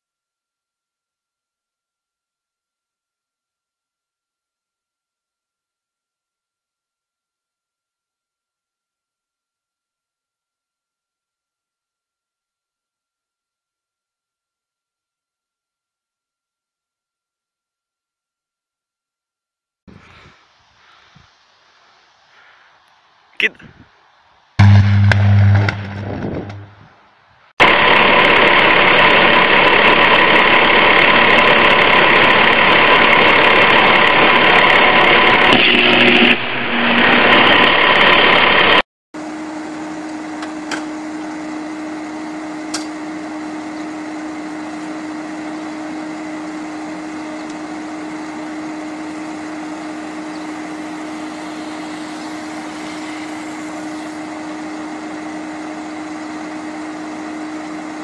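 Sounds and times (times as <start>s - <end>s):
power line arcing buzz: 24.6s - 26.9s, 27.6s - 58.0s.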